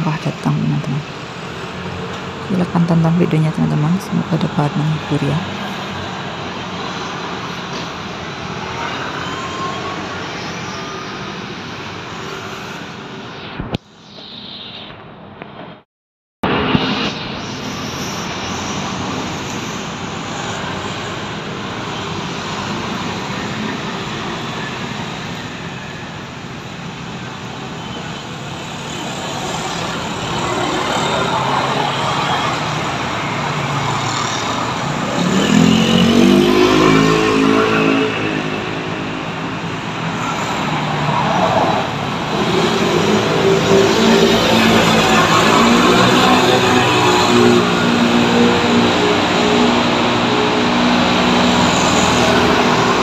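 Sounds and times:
scooters and cars passing: 0:00.0 - 0:14.2, 0:16.5 - 0:53.0.

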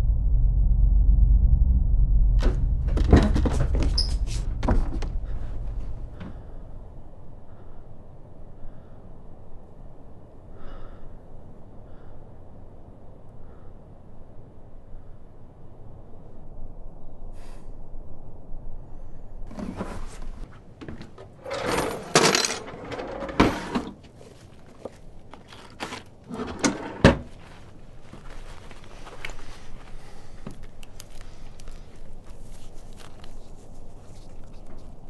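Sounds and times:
wooden drawer opening: 0:19.5 - 0:24.0, 0:25.6 - 0:27.3.

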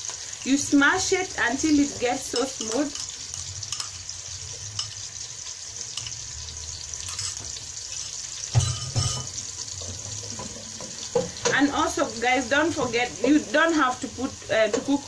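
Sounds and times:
onion and garlic sizzling in oil: 0:00.0 - 0:15.0
spoon clattering: 0:02.2 - 0:05.0, 0:05.9 - 0:06.2, 0:07.0 - 0:11.6
wooden spoon stirring pan: 0:07.1 - 0:11.8.

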